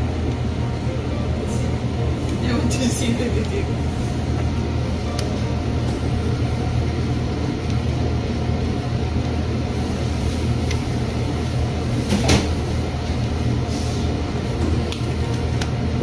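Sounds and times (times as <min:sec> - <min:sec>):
low mechanical hum: 0:00.0 - 0:16.0.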